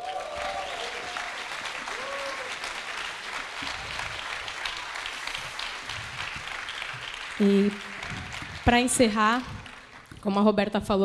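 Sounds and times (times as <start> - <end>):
voices cheering: 0.0 - 2.8
audience applauding: 0.0 - 10.4.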